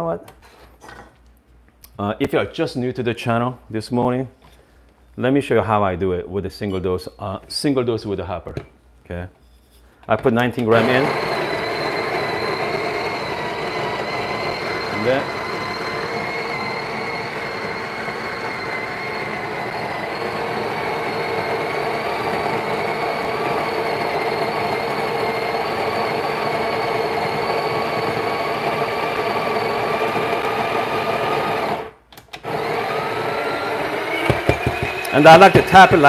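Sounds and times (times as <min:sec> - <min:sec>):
coffee grinder whirring: 0:10.7 - 0:36.0.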